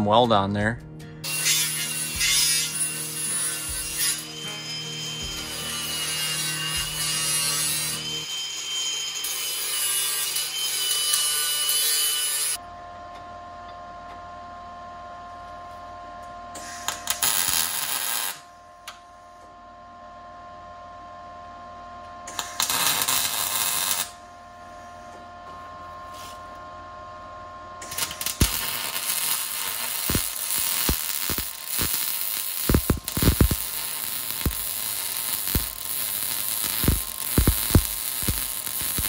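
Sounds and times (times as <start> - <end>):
arc welding crackling: 1.2 - 8.3, 16.6 - 18.5, 22.3 - 24.2, 27.8 - 39.0
steady hum: 12.6 - 39.0.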